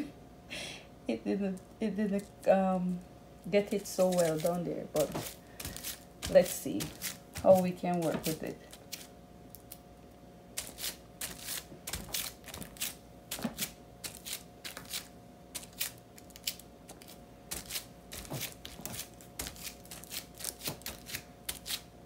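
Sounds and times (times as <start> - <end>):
plastic film crinkling: 3.6 - 9.8, 10.6 - 21.8.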